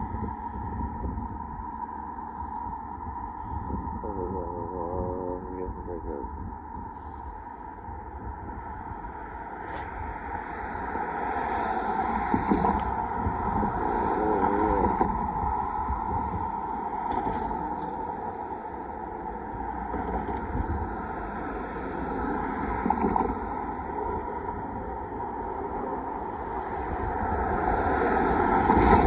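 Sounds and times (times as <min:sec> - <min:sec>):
road traffic passing: 0:00.0 - 0:29.0
wind buffeting microphone: 0:00.0 - 0:29.0.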